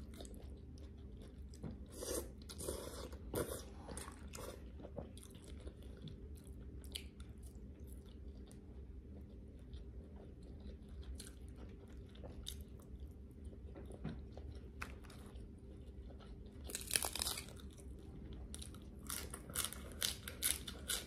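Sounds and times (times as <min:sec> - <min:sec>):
soft chewing: 0:00.0 - 0:21.0
crisp lettuce crunching: 0:16.1 - 0:17.9, 0:18.5 - 0:21.0.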